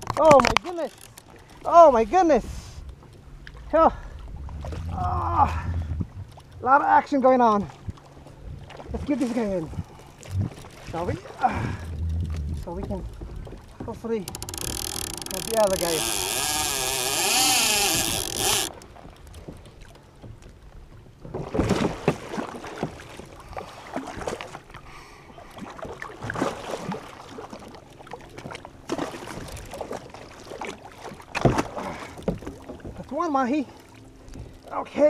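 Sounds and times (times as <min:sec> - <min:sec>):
water splashing against kayak hull: 0:00.0 - 0:35.0.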